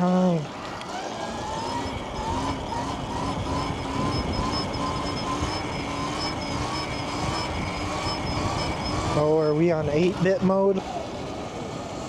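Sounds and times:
electric motor whining: 0:00.0 - 0:12.0
wind rumble on microphone: 0:01.9 - 0:10.2.

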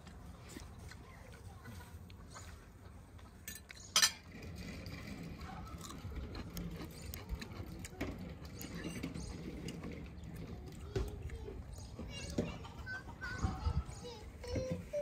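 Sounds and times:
clicks and rustles of eating: 0:00.0 - 0:15.0
tableware clinking: 0:03.5 - 0:04.4.

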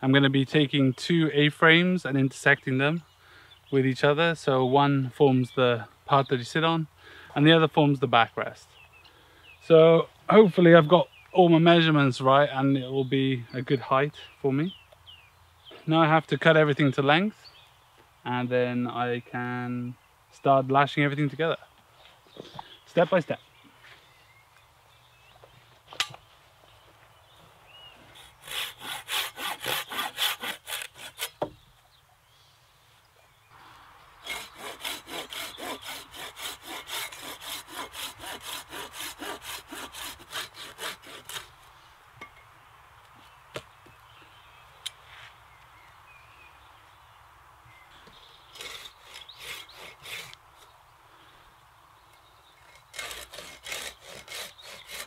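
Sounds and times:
hand saw cutting wood: 0:28.1 - 0:31.4, 0:34.2 - 0:41.6, 0:48.5 - 0:50.4, 0:52.6 - 0:55.0.

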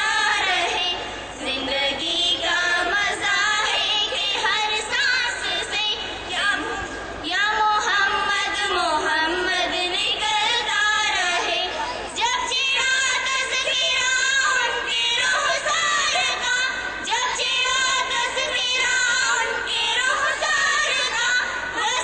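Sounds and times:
girls singing into a microphone: 0:00.0 - 0:22.0.

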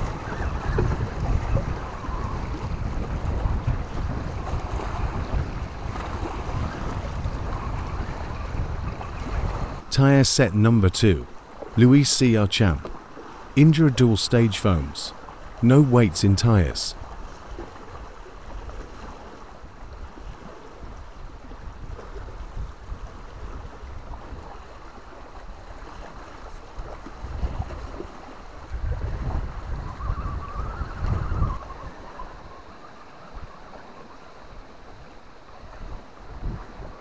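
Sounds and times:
wind buffeting microphone: 0:00.0 - 0:09.9, 0:17.0 - 0:33.6, 0:35.6 - 0:37.0.

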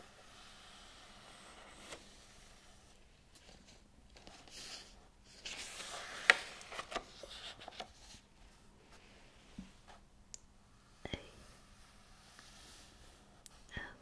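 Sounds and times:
book pages turning: 0:01.2 - 0:02.5, 0:03.4 - 0:08.2.

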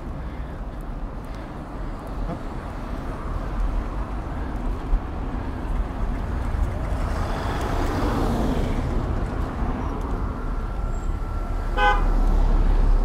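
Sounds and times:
street traffic rumble: 0:00.0 - 0:13.0
horn toot: 0:11.7 - 0:12.2.

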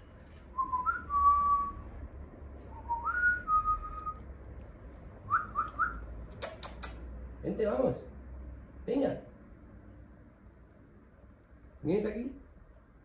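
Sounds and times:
person whistling: 0:00.6 - 0:01.8, 0:02.7 - 0:04.2
sharp clicks: 0:04.0 - 0:07.1.

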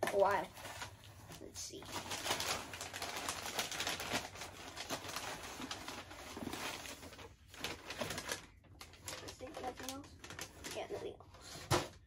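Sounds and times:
packing paper rustling: 0:00.0 - 0:12.0.

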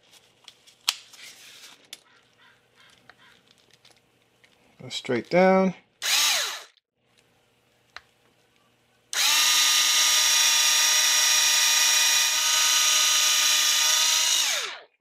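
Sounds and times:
cordless screwdriver whining: 0:06.0 - 0:06.8, 0:09.2 - 0:14.9.

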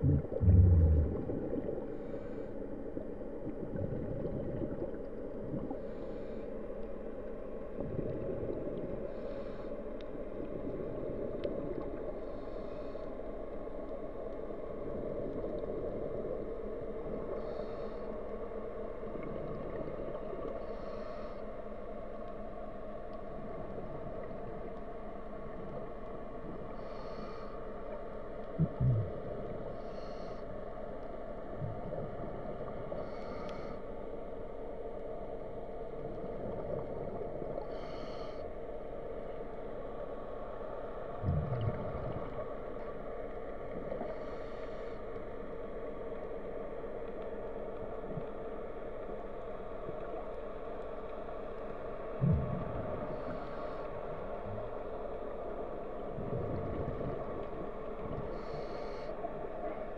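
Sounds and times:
heavy low thumps: 0:00.0 - 0:01.4
underwater low drone: 0:00.0 - 0:59.9.

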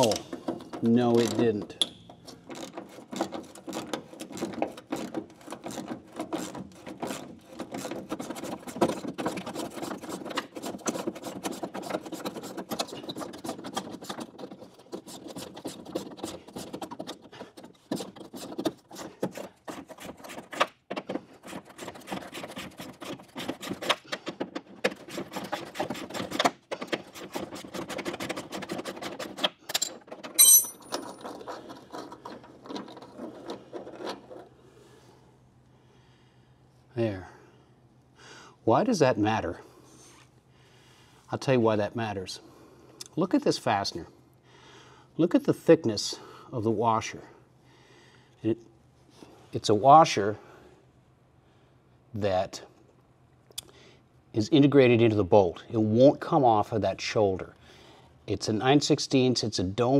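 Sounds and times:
hand ratchet clicking: 0:01.1 - 0:08.9.

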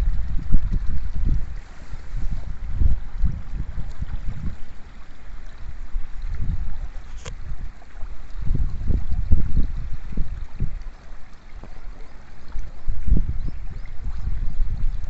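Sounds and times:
shallow stream rushing: 0:00.0 - 0:15.0
wind buffeting microphone: 0:00.0 - 0:15.0.

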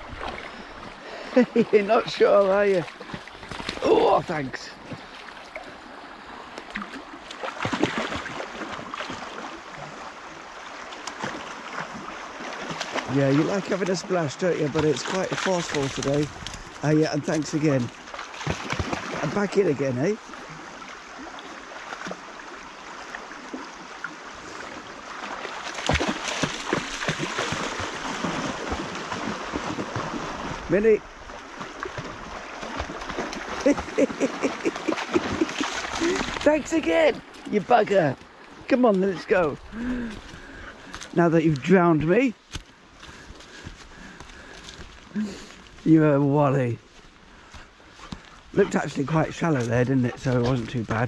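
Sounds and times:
dog splashing in water: 0:06.7 - 0:10.0, 0:17.7 - 0:19.6, 0:25.1 - 0:30.7, 0:31.3 - 0:36.6
river rushing: 0:16.8 - 0:41.4.

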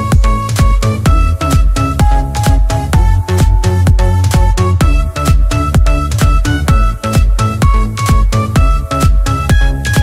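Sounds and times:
electronic dance music: 0:00.0 - 0:10.0
steady kick-drum beat: 0:00.0 - 0:10.0
synth melody: 0:01.0 - 0:08.0.

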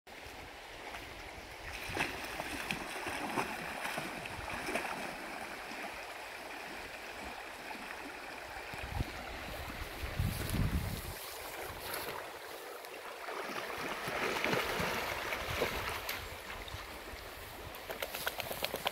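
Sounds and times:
river water flowing: 0:00.1 - 0:18.9
dog splashing in water: 0:01.7 - 0:05.2, 0:13.3 - 0:16.2.

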